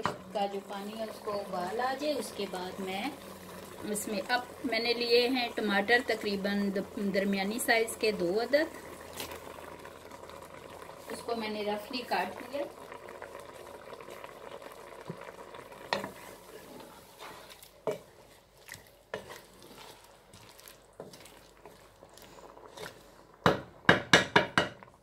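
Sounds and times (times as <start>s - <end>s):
pot simmering with bubbling hiss: 0.0s - 25.0s
wooden spoon knocking on pot: 23.4s - 24.9s.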